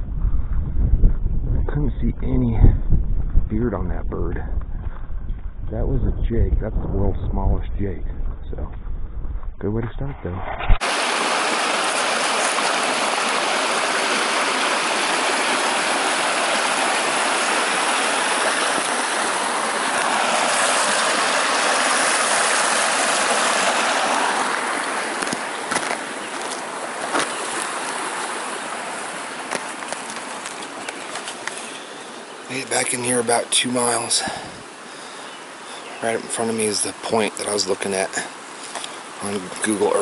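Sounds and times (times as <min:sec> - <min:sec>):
creek rushing: 0:10.8 - 0:40.0.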